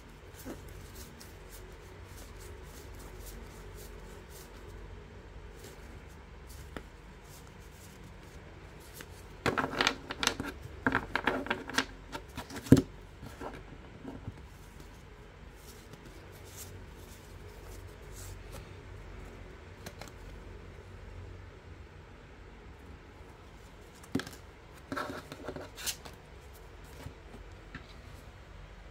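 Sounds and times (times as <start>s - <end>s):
playing cards flicking and sliding: 0.3s - 4.8s, 5.5s - 20.5s.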